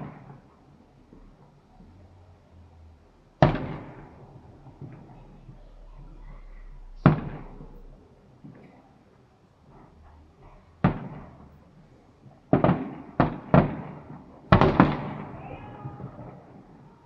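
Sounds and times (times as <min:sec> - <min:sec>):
fireworks bangs echoing: 0:00.0 - 0:00.5, 0:03.4 - 0:05.8, 0:06.8 - 0:08.8, 0:10.8 - 0:11.6, 0:12.2 - 0:17.0.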